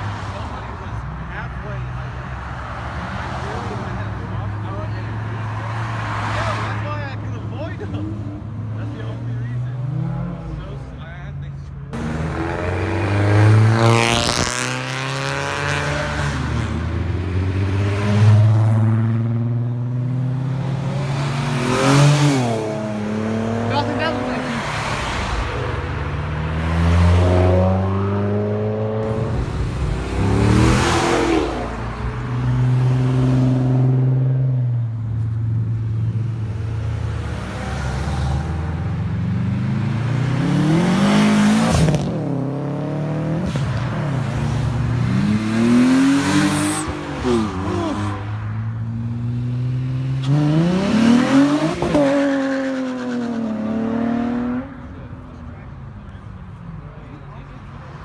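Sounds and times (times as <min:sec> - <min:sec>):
cars revving and passing: 0:00.0 - 0:58.0.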